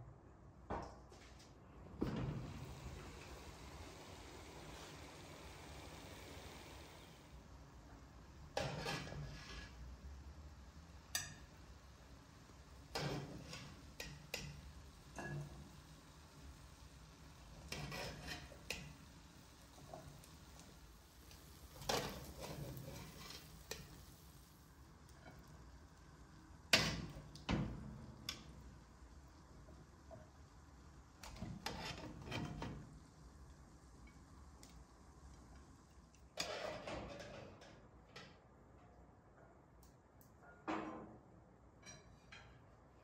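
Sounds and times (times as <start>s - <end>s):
spoon scraping and knocking pot: 17.6s - 19.0s, 21.8s - 24.0s.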